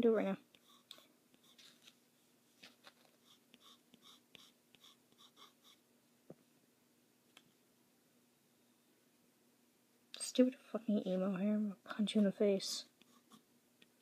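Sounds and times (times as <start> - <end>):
pencil scratching on paper: 0.6 - 1.9, 3.2 - 5.8, 13.0 - 13.4.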